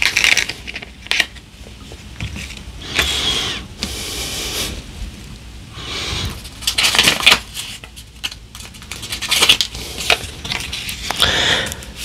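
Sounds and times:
plastic bag rustling: 0:06.0 - 0:12.0.

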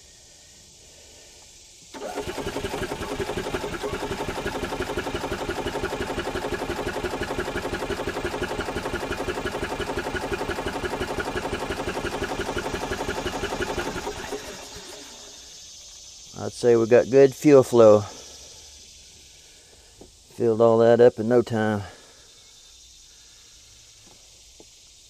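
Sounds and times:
engine cranking by starter: 0:01.9 - 0:16.1.

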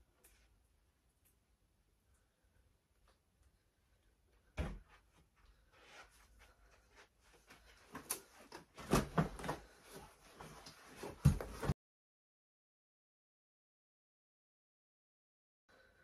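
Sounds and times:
rustling and handling noises: 0:04.9 - 0:11.8.

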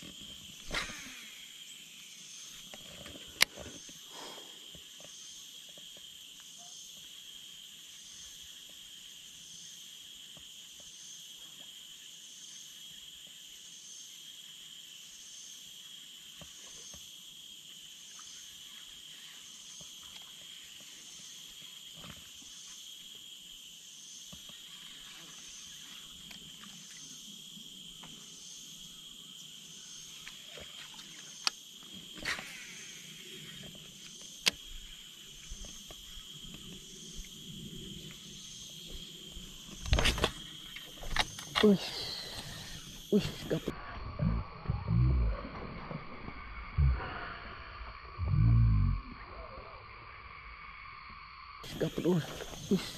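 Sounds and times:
high pulsing insect call: 0:00.0 - 0:52.9
insect chorus buzzing: 0:00.0 - 0:52.9
faint ticks: 0:30.2 - 0:31.6.

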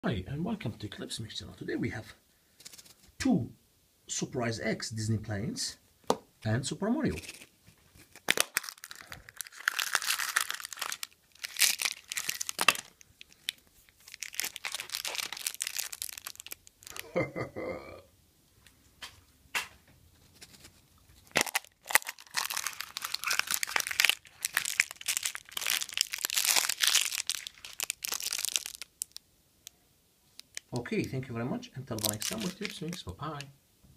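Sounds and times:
plastic wrapping crinkling: 0:07.1 - 0:17.2, 0:20.4 - 0:30.8, 0:31.9 - 0:33.5.

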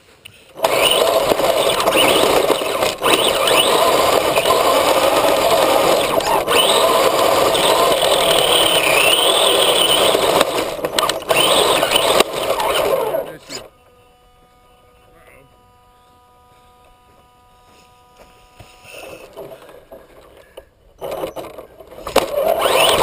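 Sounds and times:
tyres on rough dirt: 0:00.0 - 0:13.7, 0:17.8 - 0:23.0
toy truck motor whine: 0:00.5 - 0:23.0.

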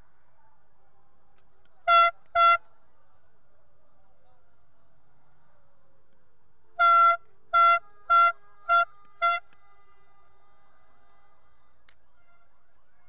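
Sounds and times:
car horn honking: 0:01.9 - 0:02.6, 0:06.8 - 0:09.5.

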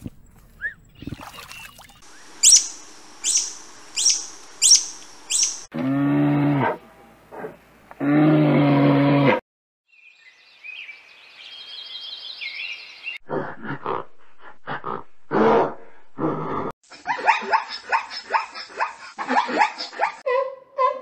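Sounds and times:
high chirps: 0:02.1 - 0:05.7
zebras barking: 0:02.4 - 0:05.7
gorilla grunting: 0:13.3 - 0:16.7.

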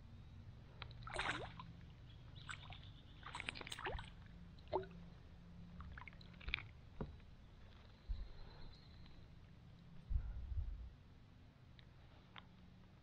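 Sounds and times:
low steady rumble: 0:00.0 - 0:13.0
small water splashes and drips: 0:00.7 - 0:05.1, 0:05.7 - 0:07.1.

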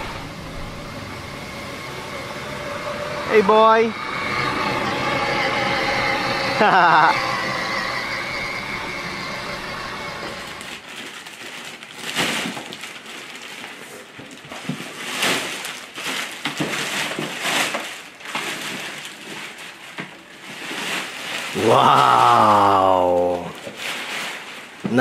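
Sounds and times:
electric toy car running: 0:00.0 - 0:13.7
plastic wrapping crinkling: 0:10.2 - 0:25.0.

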